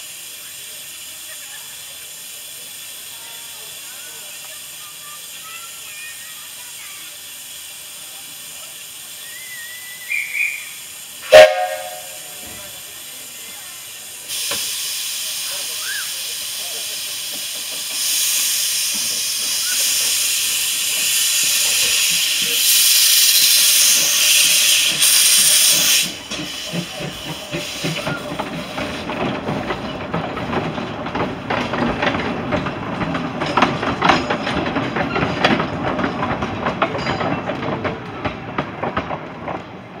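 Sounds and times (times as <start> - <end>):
steam locomotive hissing: 0.0 - 40.0
train wheels clicking on track: 0.0 - 40.0.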